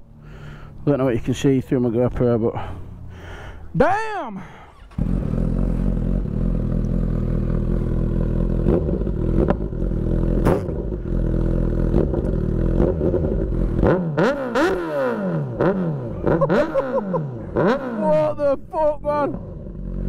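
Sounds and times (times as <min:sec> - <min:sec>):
motorcycle engine idling and revving: 0:04.4 - 0:20.0.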